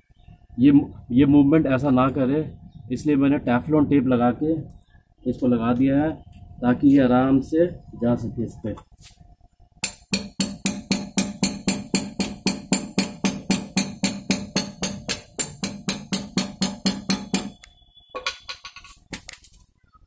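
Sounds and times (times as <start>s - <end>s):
hammer tapping on metal axle: 9.8s - 19.0s.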